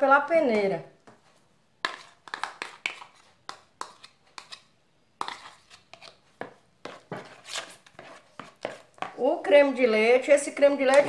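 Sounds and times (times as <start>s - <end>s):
metal spoon scraping a bowl: 1.8s - 6.2s, 6.8s - 9.1s.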